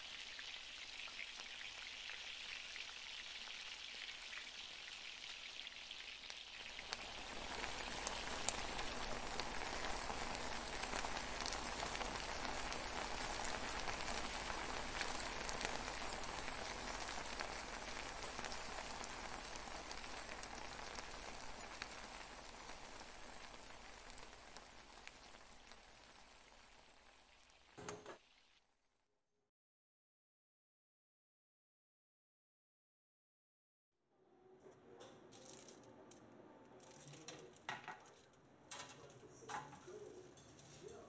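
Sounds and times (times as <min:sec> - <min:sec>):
rice sizzling in a wok: 0:00.0 - 0:28.8.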